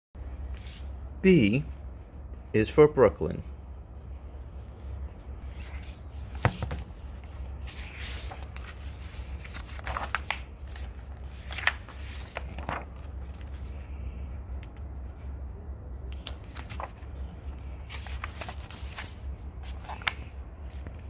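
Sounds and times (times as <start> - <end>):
low steady hum: 0.2 - 21.0
book pages rustling: 0.4 - 1.0, 4.6 - 14.0, 16.1 - 21.0.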